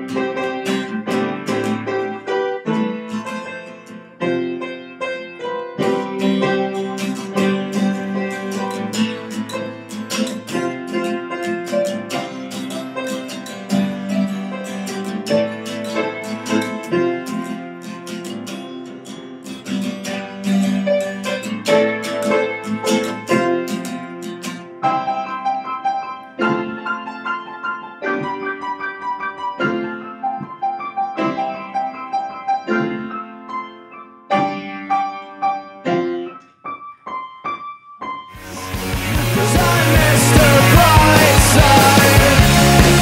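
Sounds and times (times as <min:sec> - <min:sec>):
acoustic guitar: 0:00.0 - 0:33.6, 0:38.4 - 0:43.0
upright piano: 0:00.0 - 0:43.0
loud noisy music passage: 0:38.4 - 0:43.0.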